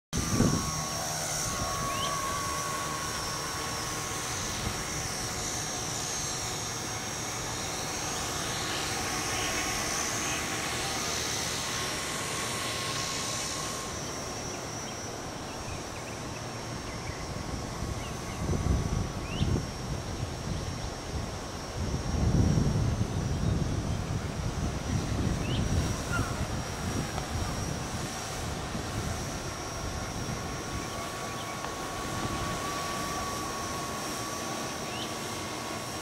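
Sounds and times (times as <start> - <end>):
wind rumble on microphone: 0.2 - 6.5, 16.5 - 33.8
drone motors whining: 0.2 - 36.0.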